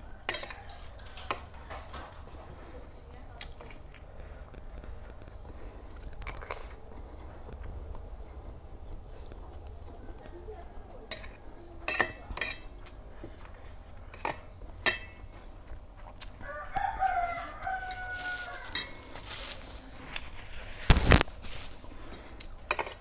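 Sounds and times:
rooster crowing: 0.0 - 2.6, 16.4 - 19.5
fork clicking on metal plate: 0.3 - 1.7, 11.1 - 13.0, 14.1 - 15.2.

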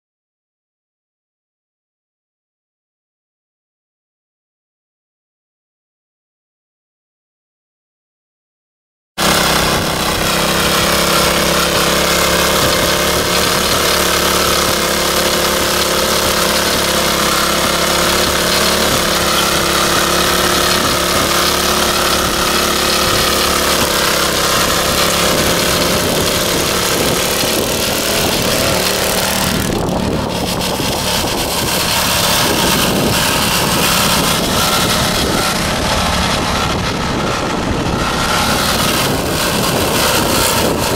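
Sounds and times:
tiller engine running under load: 9.2 - 40.9
tines churning dry soil: 9.2 - 40.9.

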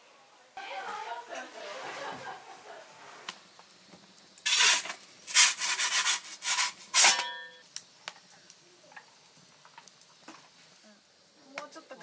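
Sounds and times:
log fire crackling: 0.0 - 12.0
metal peel scraping metal shelf: 1.6 - 2.4, 4.5 - 7.4.

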